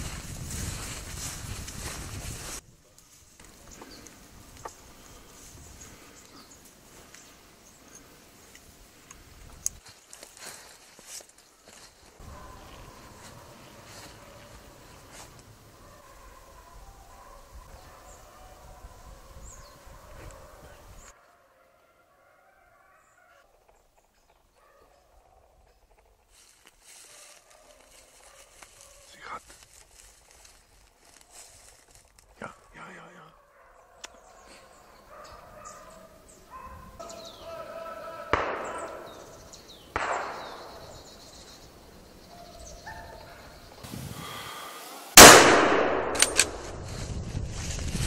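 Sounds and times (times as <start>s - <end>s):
light rustling hiss: 26.3s - 32.3s
distant animal calls: 33.2s - 39.6s
distant echoing rifle shots: 38.2s - 41.3s, 45.2s - 46.7s
loud nearby rifle shot: 38.3s - 39.3s, 39.9s - 41.0s, 45.1s - 46.8s
sharp clicks: 45.2s - 46.8s.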